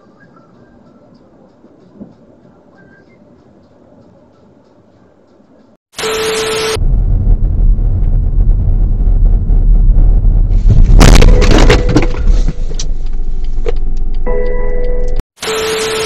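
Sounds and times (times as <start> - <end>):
car engine rumble from inside: 6.8 - 11.0, 11.8 - 15.0
rattling debris: 10.6 - 13.1.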